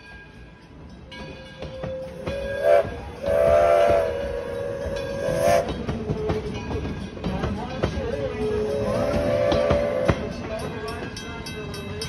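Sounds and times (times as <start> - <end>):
steam locomotive whistle: 1.8 - 6.5, 8.4 - 10.5.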